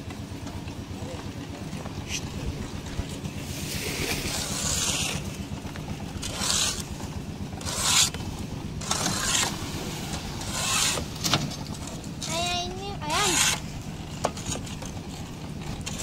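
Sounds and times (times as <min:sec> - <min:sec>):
concrete mixer engine drone: 0:00.0 - 0:16.0
wet concrete scraping out of wheelbarrow: 0:03.1 - 0:05.5.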